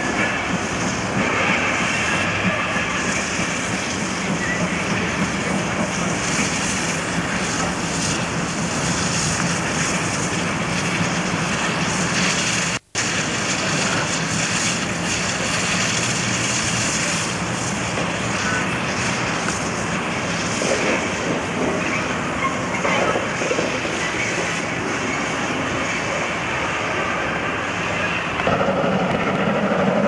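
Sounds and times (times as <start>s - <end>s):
train roaring: 0.0s - 30.0s.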